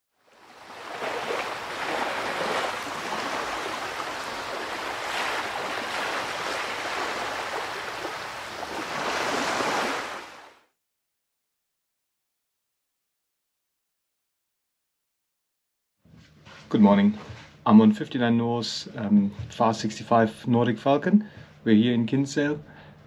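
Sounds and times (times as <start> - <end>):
ocean waves washing in and out: 0.1 - 10.7.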